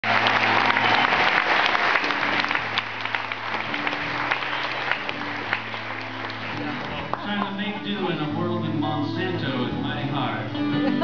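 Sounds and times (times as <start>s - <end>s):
audience applause: 0.0s - 8.0s.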